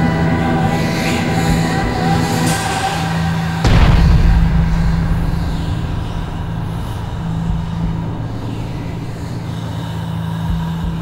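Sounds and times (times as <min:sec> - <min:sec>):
steady low drone: 0:00.0 - 0:11.0
rough rumbling noise: 0:00.4 - 0:10.4.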